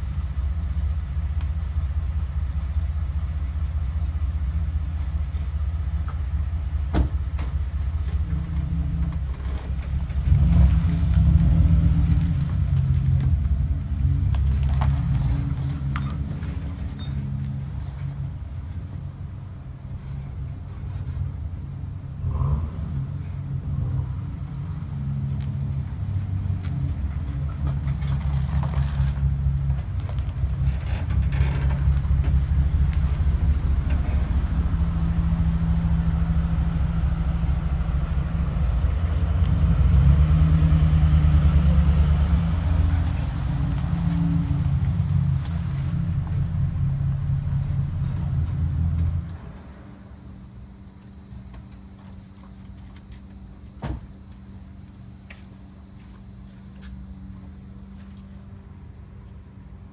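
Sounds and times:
truck engine running: 0.0s - 22.2s, 22.9s - 59.9s.

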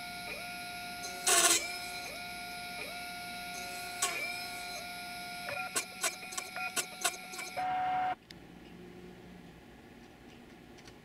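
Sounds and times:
spindle whining while drilling: 0.0s - 8.2s.

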